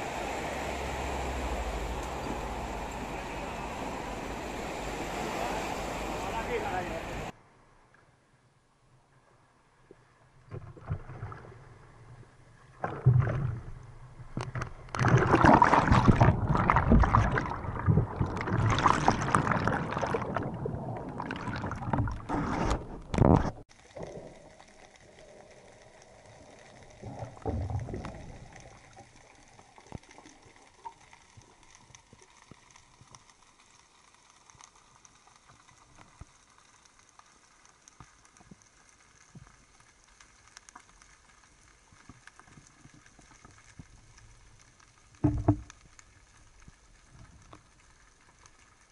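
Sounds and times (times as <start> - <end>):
surf splashing at waterline: 0.0 - 7.3, 12.7 - 24.3
faint underwater hiss: 0.0 - 7.6
small underwater ticks: 23.7 - 48.9.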